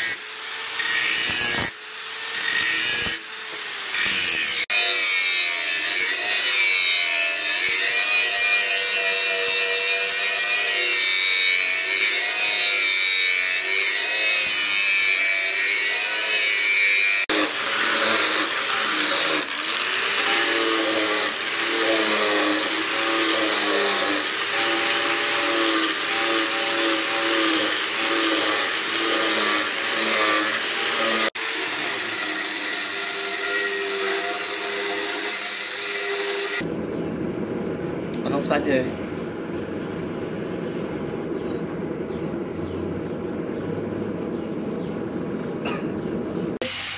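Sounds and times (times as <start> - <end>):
angle grinder grinding steel: 0.0 - 36.7.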